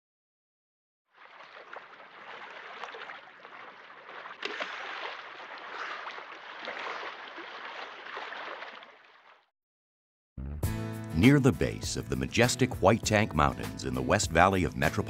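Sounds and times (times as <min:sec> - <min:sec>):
water rushing and splashing: 0:01.1 - 0:09.5.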